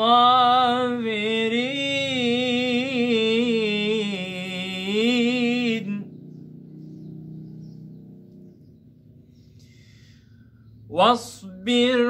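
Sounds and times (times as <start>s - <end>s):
man reciting melodically: 0.0s - 6.3s, 10.8s - 12.0s.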